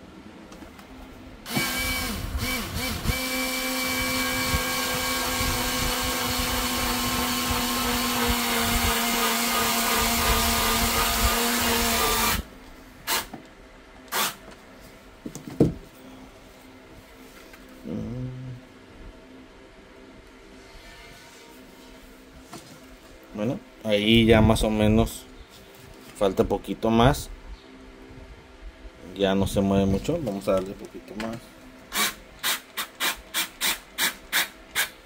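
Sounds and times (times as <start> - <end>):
electric screwdriver running: 1.5 - 12.5.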